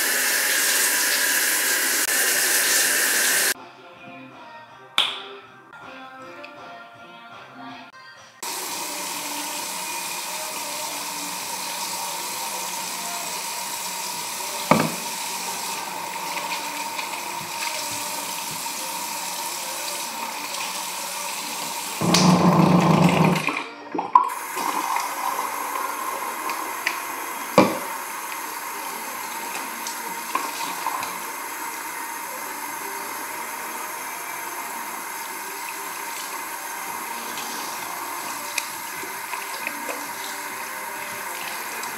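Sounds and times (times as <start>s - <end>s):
tap running into sink: 14.6s - 15.2s, 21.6s - 25.8s, 26.4s - 28.4s.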